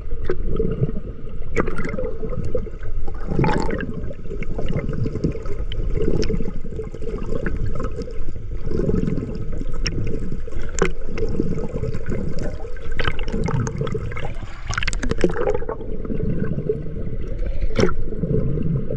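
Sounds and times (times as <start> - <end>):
muffled underwater rushing water: 0.0 - 18.9
sharp underwater clicks: 9.7 - 11.4, 12.4 - 15.8, 17.4 - 18.0.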